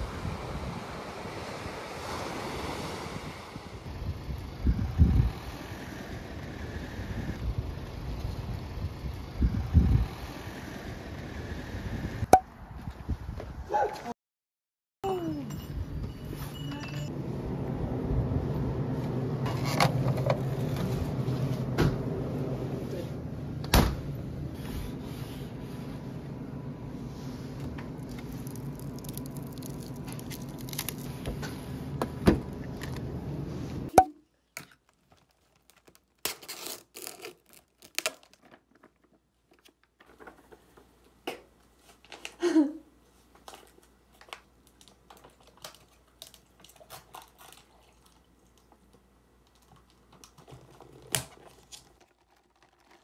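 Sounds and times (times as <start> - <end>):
refrigerators humming: 15.0 - 34.0
plastic crinkling and tearing: 28.0 - 31.3, 34.6 - 39.1, 49.4 - 53.0
ice clicking in a plastic cup: 49.4 - 53.0.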